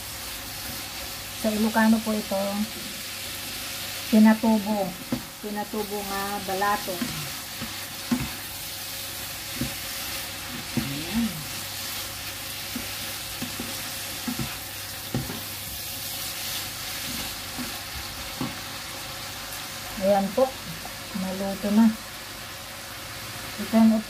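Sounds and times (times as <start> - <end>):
food sizzling in frying pan: 0.0 - 24.0
spatula scraping and knocking pan: 6.7 - 8.5, 9.5 - 11.1, 12.6 - 15.6.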